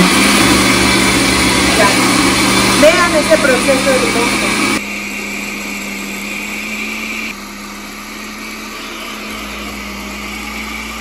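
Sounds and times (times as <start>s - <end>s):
blender motor grinding: 0.0s - 11.0s.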